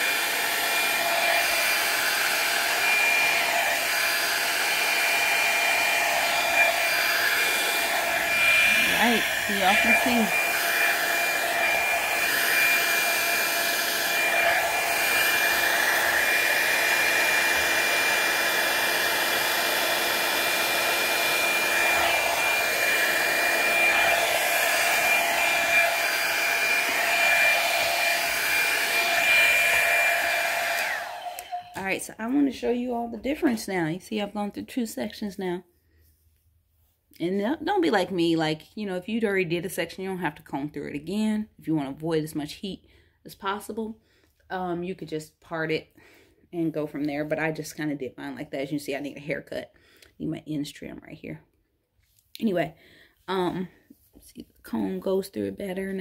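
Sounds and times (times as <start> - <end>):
hair dryer brush blowing: 0.0 - 32.7.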